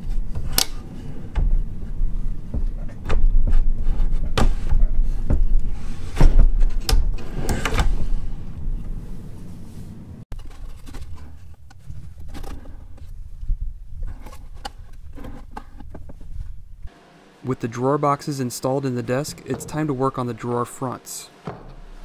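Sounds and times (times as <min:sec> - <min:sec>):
drawer sliding and knocking: 0:00.0 - 0:09.0.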